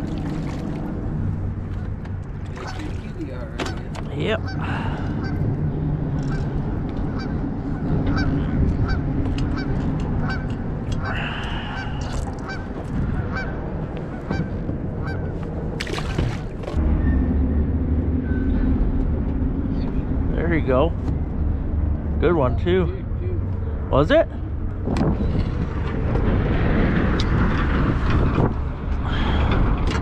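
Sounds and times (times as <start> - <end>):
low rumble: 0.0 - 30.0
geese honking: 4.4 - 5.4, 7.1 - 15.3.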